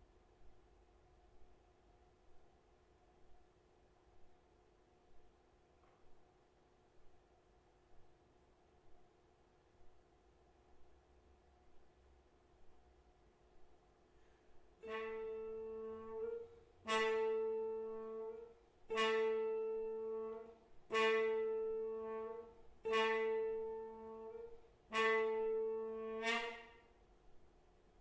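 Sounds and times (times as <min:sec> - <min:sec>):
muted trombone held note: 0:14.8 - 0:27.0.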